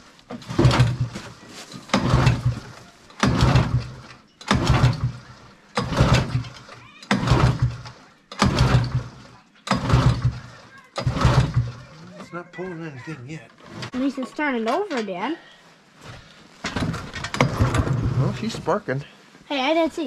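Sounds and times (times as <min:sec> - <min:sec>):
engine pull-start whirring: 0:00.3 - 0:12.0, 0:16.7 - 0:18.6.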